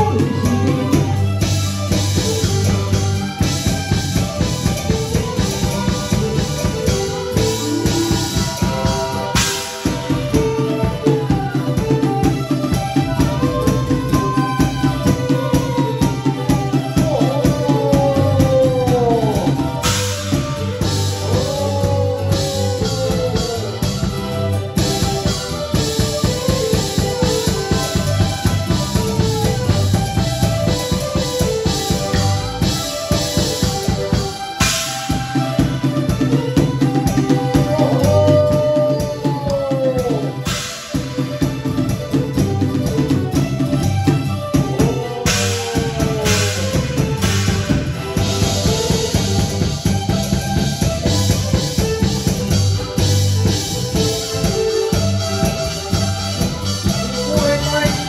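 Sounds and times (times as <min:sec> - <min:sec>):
held melodic notes: 0:00.0 - 0:58.0
rapid drumming: 0:00.0 - 0:58.0.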